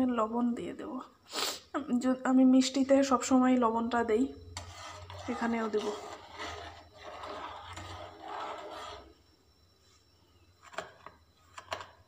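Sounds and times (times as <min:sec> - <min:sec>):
metal spoon scraping pot: 0:04.5 - 0:09.2.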